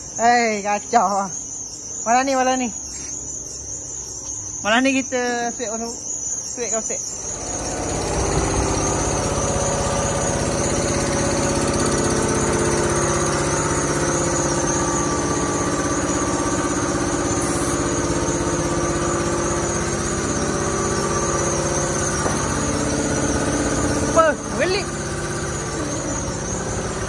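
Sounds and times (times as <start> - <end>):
engine running steadily: 7.2 - 27.0.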